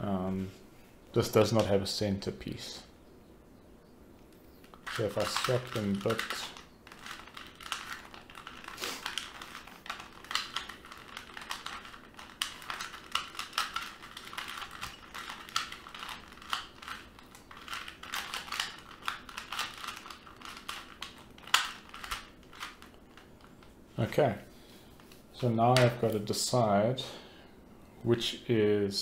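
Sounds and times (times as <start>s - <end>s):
puzzle cube clicking as twisted: 4.6s - 23.6s.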